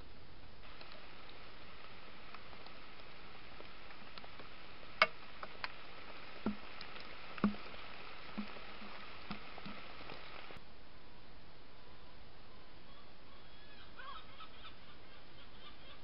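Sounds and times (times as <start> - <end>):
microphone hiss: 0.0 - 16.0
soft clicks and knocks: 6.4 - 7.7.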